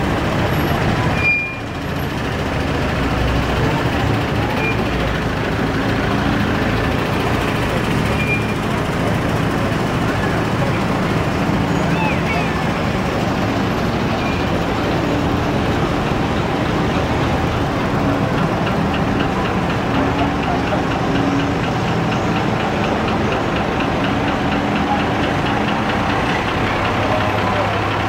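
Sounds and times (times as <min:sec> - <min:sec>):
jeep engine running: 0:00.0 - 0:28.0
truck diesel engine running slowly: 0:00.0 - 0:28.0.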